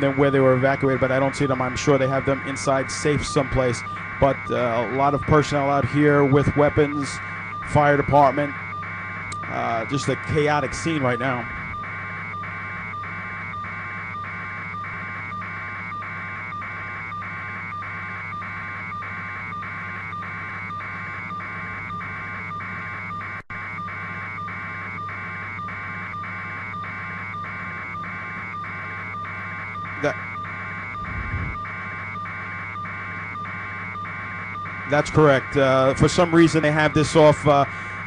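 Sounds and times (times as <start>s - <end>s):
pulsing buzzing hum: 0.0s - 38.0s.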